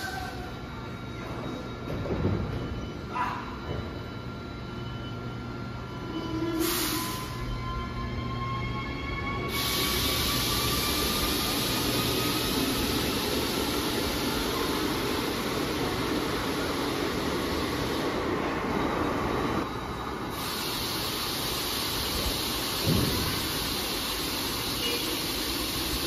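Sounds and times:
train motor whine: 3.8 - 18.3
hiss: 6.6 - 7.4, 9.5 - 18.4, 20.3 - 26.0
train running rumble: 9.3 - 26.0.

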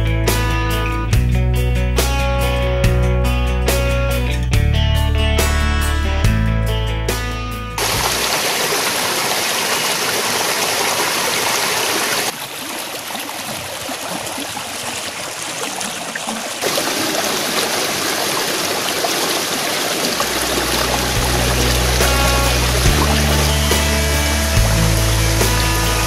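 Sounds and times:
music with deep bass: 0.0 - 7.8, 20.4 - 26.0
stream rushing over boulders: 7.8 - 26.0.

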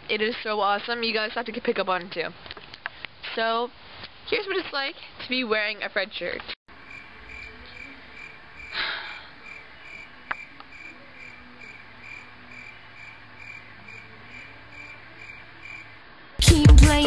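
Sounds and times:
crickets chirping: 6.7 - 16.1.

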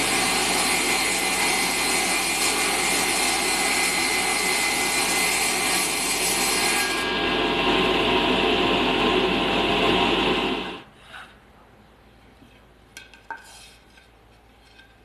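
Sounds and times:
table saw running: 0.0 - 10.8.

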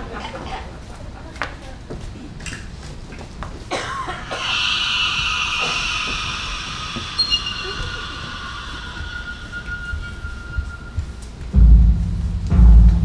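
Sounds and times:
high-pitched shimmering tone: 4.1 - 11.6
chime-like rings: 4.4 - 11.6.

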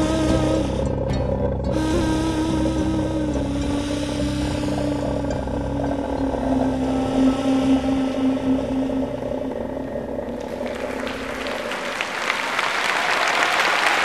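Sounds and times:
bowed fiddle: 0.0 - 12.1
end-blown wooden flute: 0.0 - 13.2
low drone: 0.0 - 13.2.

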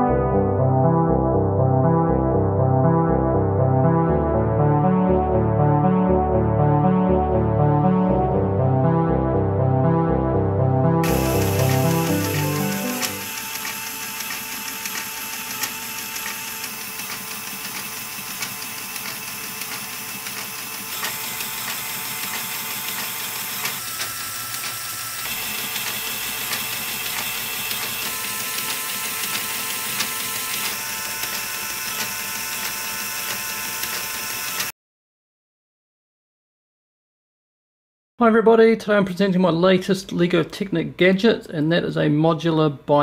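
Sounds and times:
motor and gears whirring: 11.0 - 34.7
rapid small clicks: 11.2 - 34.7.

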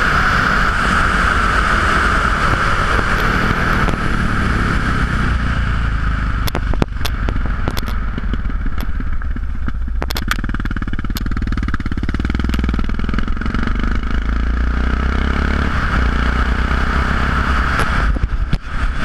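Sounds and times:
wind noise on microphone: 0.0 - 10.4, 15.4 - 19.0
motorcycle engine accelerating: 0.0 - 19.0.

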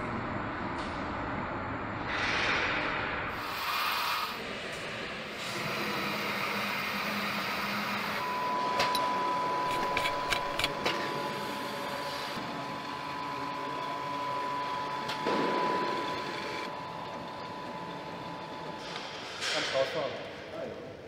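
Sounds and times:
machinery hum with high tone: 0.0 - 21.0
connectors clicking: 9.7 - 10.9.

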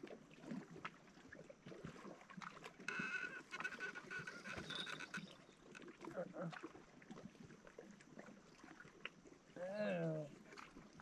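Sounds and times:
faint clicks: 2.8 - 5.9
faint drawn-out animal call: 2.9 - 5.4.

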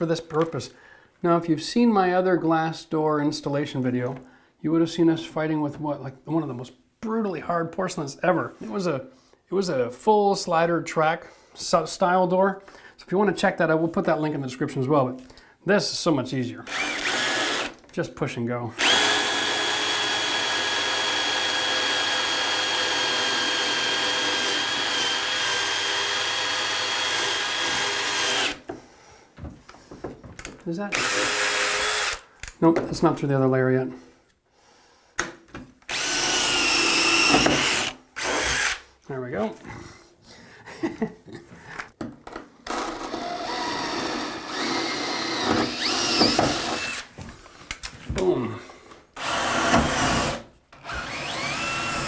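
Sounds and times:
drill grinding into tile: 16.7 - 17.8, 18.8 - 28.6, 30.9 - 32.2, 35.9 - 38.9, 42.7 - 47.1, 49.2 - 52.0.

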